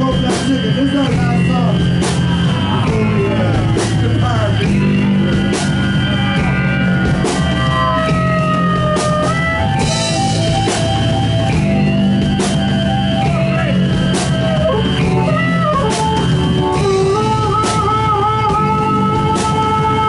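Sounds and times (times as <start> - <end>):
bass guitar: 0.0 - 20.0
drums with cymbal crashes: 0.0 - 20.0
electric guitar lead: 0.0 - 20.0.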